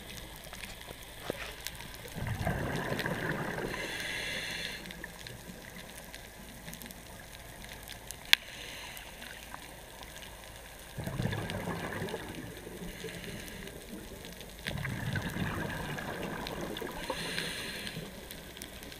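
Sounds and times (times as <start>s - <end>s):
exhaled bubbles underwater: 1.8s - 7.8s, 9.8s - 18.9s
regulator hissing inhale: 3.7s - 5.2s, 8.3s - 9.7s, 12.8s - 14.0s, 16.8s - 18.7s.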